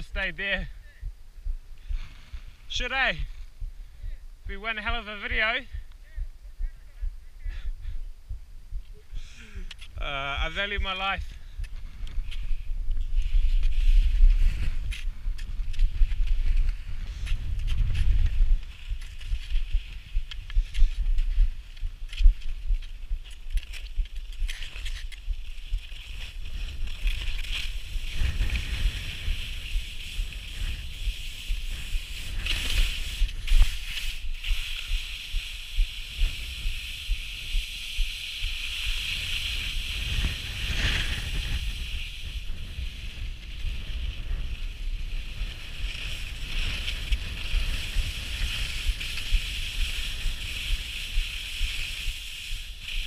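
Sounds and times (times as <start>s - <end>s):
wind buffeting microphone: 5.4s - 53.0s
skis scraping over snow: 11.8s - 53.0s.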